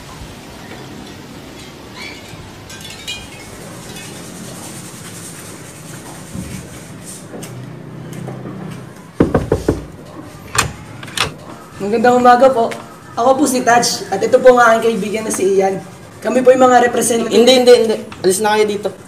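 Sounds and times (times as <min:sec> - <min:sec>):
steady hiss: 0:00.0 - 0:07.4
faint clinks: 0:01.1 - 0:04.5
knocking on a door: 0:09.2 - 0:09.9.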